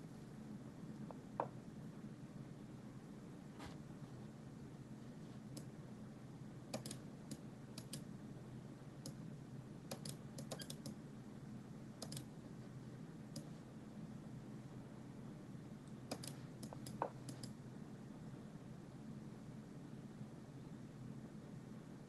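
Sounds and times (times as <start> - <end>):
low steady hum: 0.0 - 22.0
mouse and keyboard clicks: 6.7 - 8.1, 9.9 - 11.0, 12.0 - 12.3, 16.1 - 17.6.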